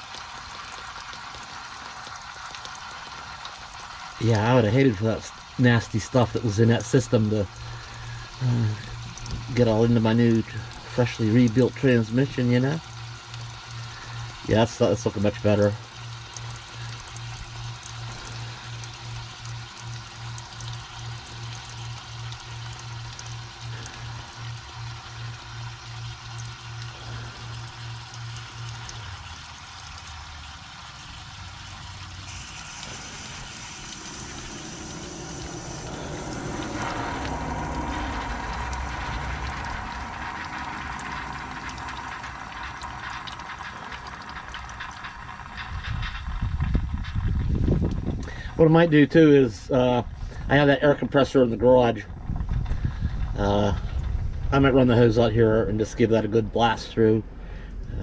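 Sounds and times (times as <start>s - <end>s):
cleaner fizzing and hissing: 0.0s - 45.9s
liquid spluttering and dripping: 0.0s - 48.6s
pulsing low hum: 5.3s - 58.0s.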